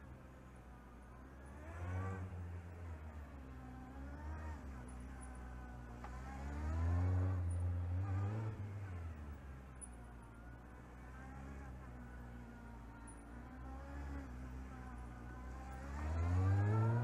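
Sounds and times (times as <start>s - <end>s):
motorcycle engine revving: 15.5s - 17.0s.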